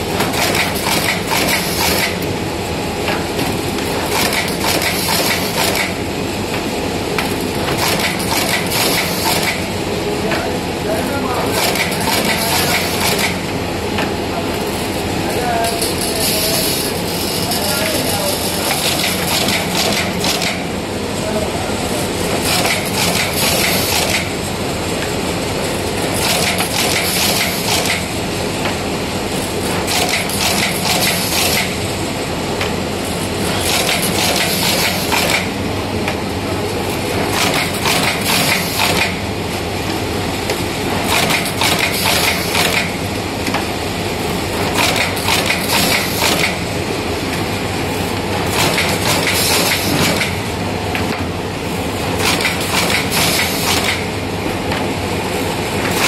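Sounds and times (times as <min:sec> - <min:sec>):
stitching machine humming: 0:00.0 - 0:56.0
machine clattering: 0:37.3 - 0:39.2, 0:41.0 - 0:43.0, 0:48.5 - 0:50.4.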